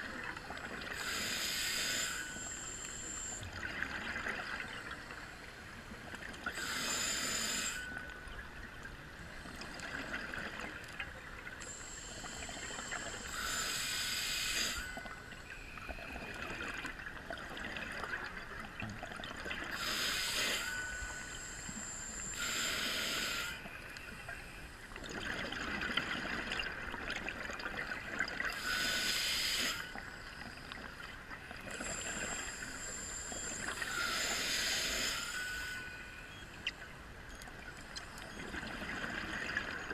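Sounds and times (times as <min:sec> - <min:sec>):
hissing regulator inhalation: 0:00.9 - 0:03.4, 0:06.5 - 0:08.0, 0:11.6 - 0:15.1, 0:19.7 - 0:23.7, 0:28.5 - 0:30.4, 0:31.7 - 0:36.2.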